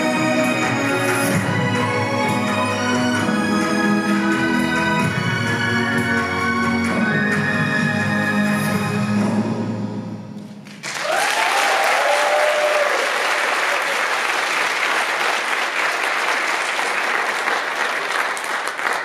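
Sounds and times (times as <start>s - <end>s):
audience applauding: 10.6s - 19.0s
whooping cheers: 10.9s - 14.4s.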